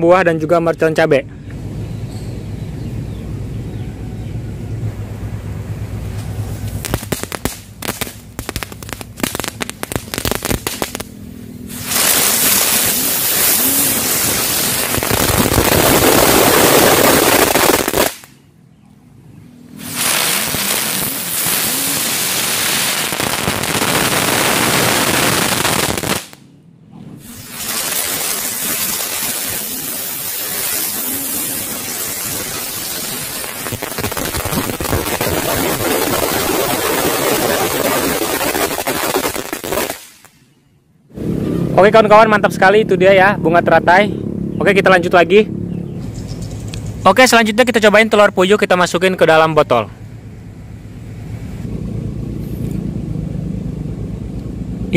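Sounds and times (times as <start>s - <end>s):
spinning fireworks hissing: 4.8s - 18.5s, 19.6s - 41.8s
firecracker cracks: 6.2s - 18.5s, 19.8s - 26.5s, 27.2s - 40.6s.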